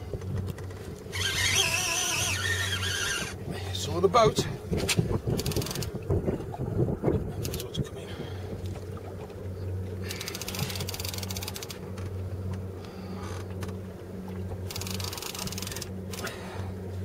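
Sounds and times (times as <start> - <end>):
boat engine humming: 0.0 - 17.0
fishing reel ratcheting clicks: 5.4 - 5.9, 10.0 - 11.8, 14.7 - 16.3.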